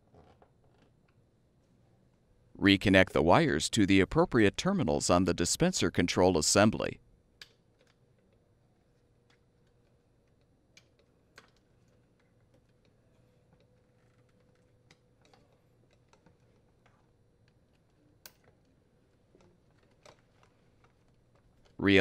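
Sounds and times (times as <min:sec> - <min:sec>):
low steady hum: 0:21.8 - 0:22.0.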